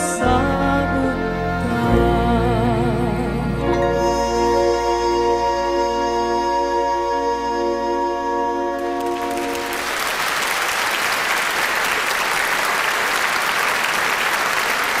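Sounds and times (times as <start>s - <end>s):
orchestra held chord: 3.6s - 10.0s
audience applauding: 8.8s - 15.0s.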